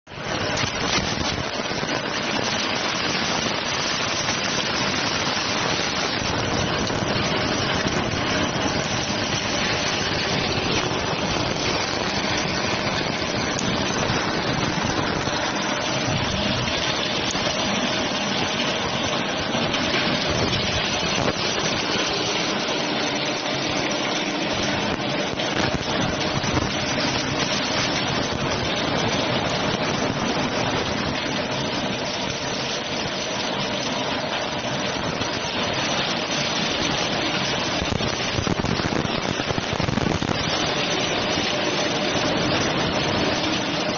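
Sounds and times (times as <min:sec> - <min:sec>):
electric meat grinder running: 0:00.3 - 0:29.0.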